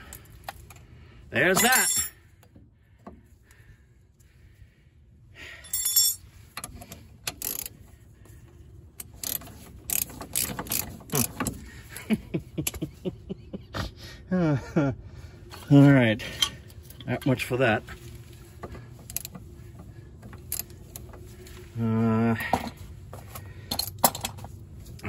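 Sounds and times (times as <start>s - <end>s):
metal tools clinking: 1.4s - 2.3s, 5.5s - 7.8s, 15.6s - 21.6s, 22.4s - 25.0s
ratchet wrench clicking: 5.8s - 7.8s, 9.0s - 11.6s, 19.0s - 21.2s.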